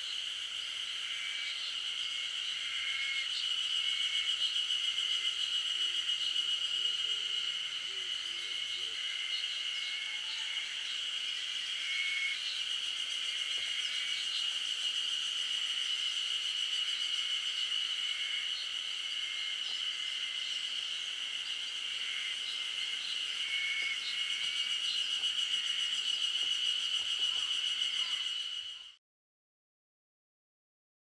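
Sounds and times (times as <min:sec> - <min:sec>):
insects trilling: 0:00.0 - 0:29.0.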